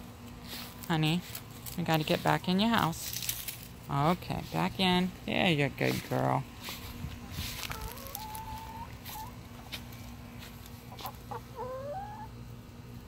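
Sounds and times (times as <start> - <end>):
hen calling: 7.5 - 9.4, 10.9 - 12.4.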